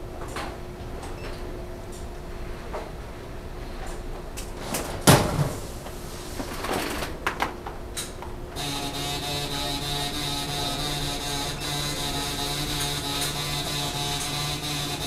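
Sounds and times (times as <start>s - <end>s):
steady hum with held tones: 5.6s - 15.0s.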